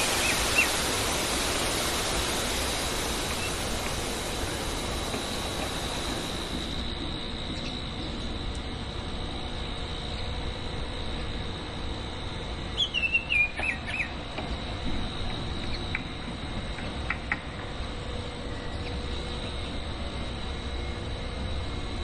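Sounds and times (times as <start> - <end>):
bird singing whistled notes: 12.8 - 14.2.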